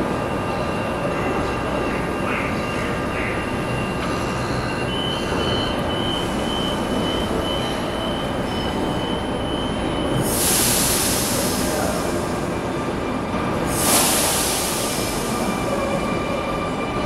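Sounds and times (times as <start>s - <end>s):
electric train humming: 0.0s - 17.0s
door-closing warning beeps: 0.5s - 11.4s
train doors sliding shut: 13.4s - 15.5s.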